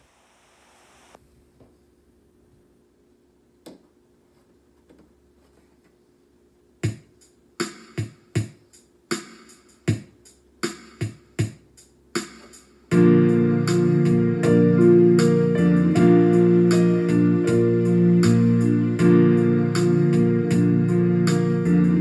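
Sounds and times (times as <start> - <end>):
drum machine hits: 6.8 - 14.6
keyboards backing track: 12.2 - 22.0.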